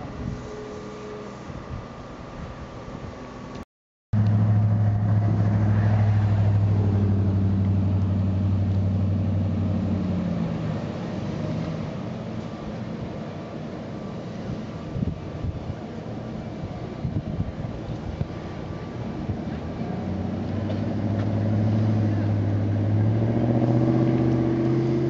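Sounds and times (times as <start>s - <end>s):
vehicle engine running: 4.2s - 10.2s.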